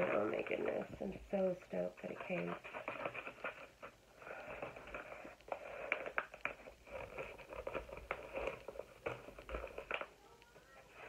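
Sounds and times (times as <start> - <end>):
packaging rustling: 2.2 - 11.0.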